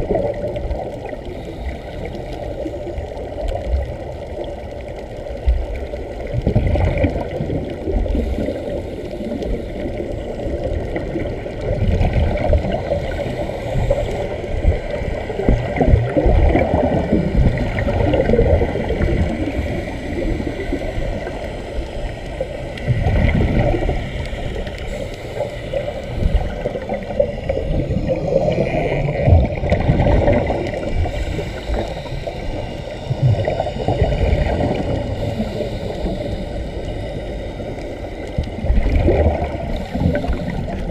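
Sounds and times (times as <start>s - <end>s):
air bubbling underwater: 14.6s - 20.6s, 22.9s - 24.0s, 26.2s - 31.8s, 38.5s - 40.9s.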